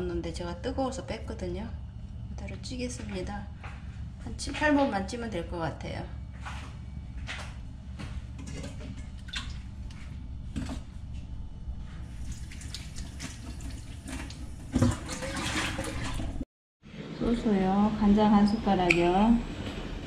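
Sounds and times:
water boiling in a pot: 12.0s - 16.4s.

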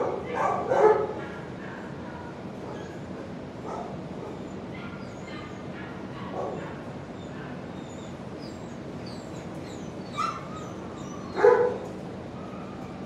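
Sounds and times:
dogs barking and whimpering: 0.0s - 13.0s
high squeaky dog whines: 7.2s - 13.0s.

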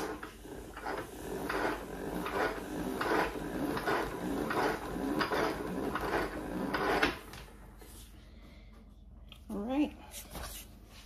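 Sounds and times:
spin mop bucket pedal pumping: 0.0s - 7.8s.

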